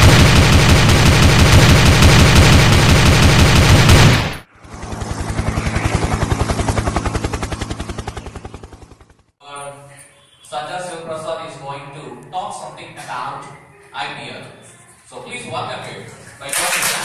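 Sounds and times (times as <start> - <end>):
rapid machine-gun-like rattle: 0.0 - 4.4
helicopter rotor chopping: 0.0 - 9.4.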